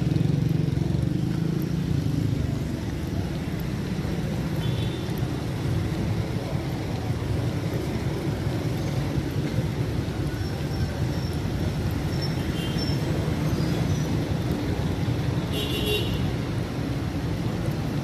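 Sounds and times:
motorcycle engines passing: 0.0s - 18.0s
street traffic rumble: 0.0s - 18.0s.

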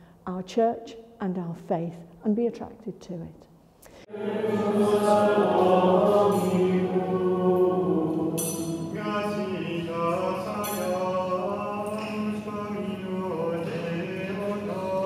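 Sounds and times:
men singing chant: 4.1s - 15.0s.

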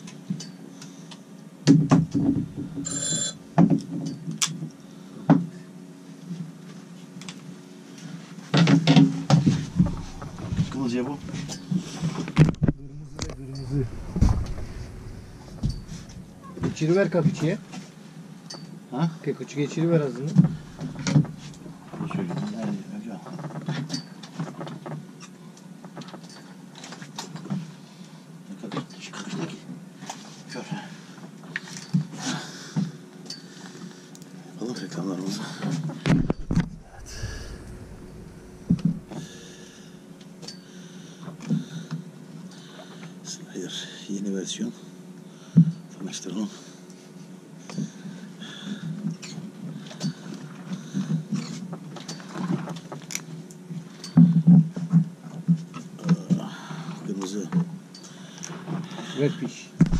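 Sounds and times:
steady low hum: 1.9s - 3.6s, 9.2s - 17.7s, 19.7s - 23.3s, 36.1s - 41.0s
high electronic ring: 2.8s - 3.4s.

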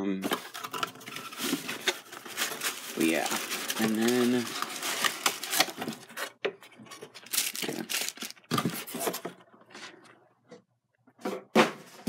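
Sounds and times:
packaging crinkling and rustling: 0.2s - 9.2s.

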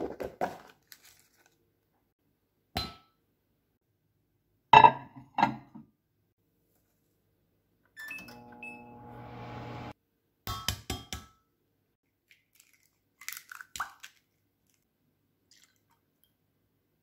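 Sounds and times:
microwave oven humming: 8.0s - 9.9s
eggshell cracking open: 12.4s - 14.8s.

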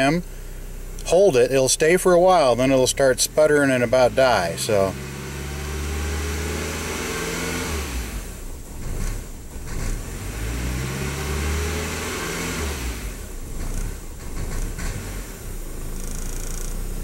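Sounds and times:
car engine revving roughly: 2.2s - 17.0s.

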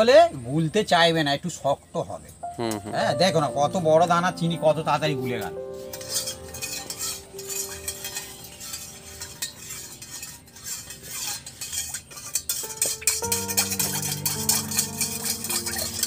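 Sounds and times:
spoon stirring in glass: 5.8s - 16.0s.

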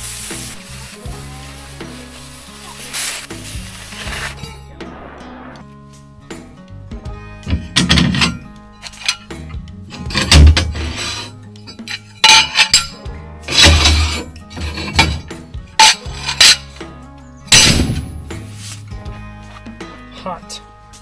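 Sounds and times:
background music: 0.0s - 21.0s
metal clanks and clinks: 7.4s - 16.8s.

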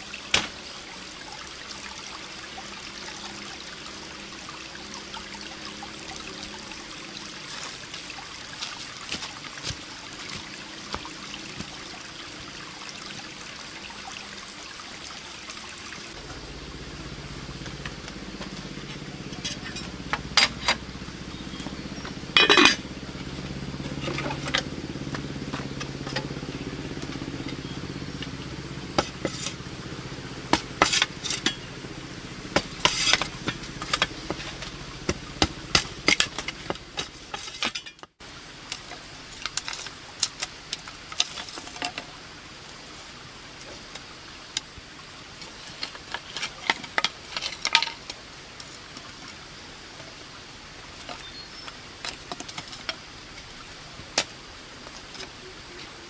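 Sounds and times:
low steady hum: 10.1s - 39.8s
metal pot and lid clinking: 22.4s - 22.9s, 37.3s - 38.1s.

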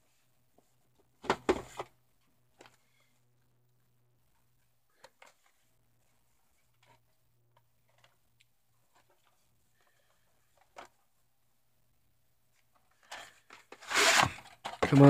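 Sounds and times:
rubbing and knocking: 13.7s - 15.0s.

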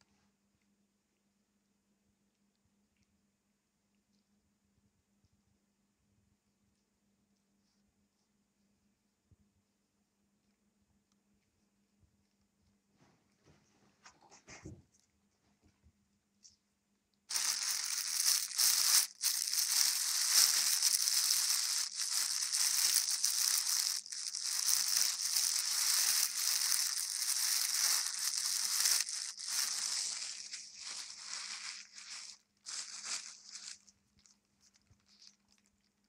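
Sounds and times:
crinkling rustle: 17.3s - 36.0s.

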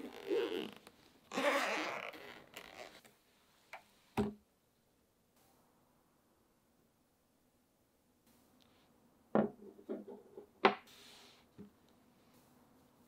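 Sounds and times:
zipper pulled open: 0.0s - 3.1s.

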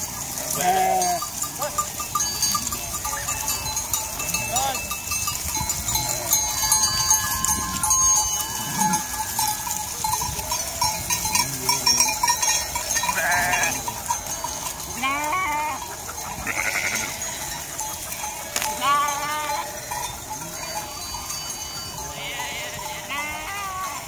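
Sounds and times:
sheep bells ringing: 0.0s - 24.0s
sheep bleating: 0.6s - 1.3s, 5.9s - 9.2s, 12.6s - 13.9s, 14.9s - 17.5s, 18.5s - 20.8s, 21.4s - 24.0s.

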